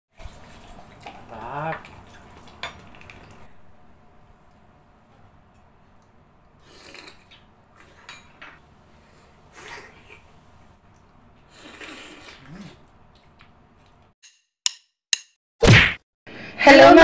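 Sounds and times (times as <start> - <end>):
mouth slurping and sucking: 6.6 - 7.2, 11.5 - 12.9
sharp click: 14.2 - 15.4.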